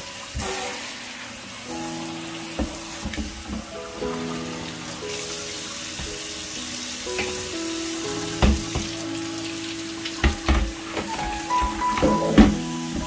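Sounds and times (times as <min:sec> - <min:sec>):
tap water splashing in sink: 0:02.6 - 0:03.8, 0:07.1 - 0:13.0.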